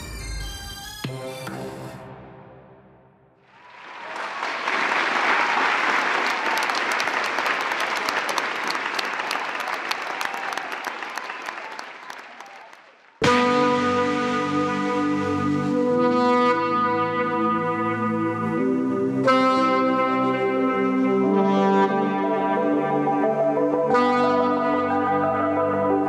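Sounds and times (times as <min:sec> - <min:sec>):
audience applauding: 0:03.5 - 0:13.2
loud brass music: 0:13.2 - 0:26.0.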